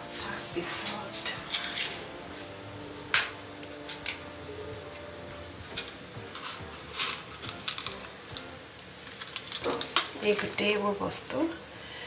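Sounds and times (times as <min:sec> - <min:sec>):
faint steady hum: 0:00.0 - 0:12.0
utensils and steel dishes clinking: 0:00.6 - 0:02.2, 0:03.1 - 0:04.3, 0:05.7 - 0:10.9.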